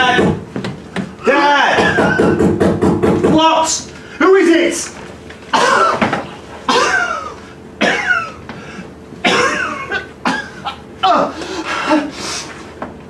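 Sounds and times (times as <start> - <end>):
man coughing hard: 1.7 - 2.4, 5.5 - 8.4, 9.2 - 12.1.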